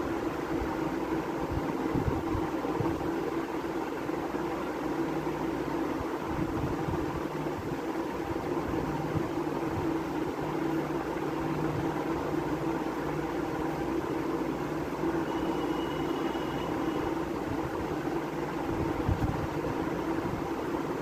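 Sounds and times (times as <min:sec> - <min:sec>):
low mechanical hum with hiss: 0:00.0 - 0:21.0
faint thin high tone: 0:15.2 - 0:17.2.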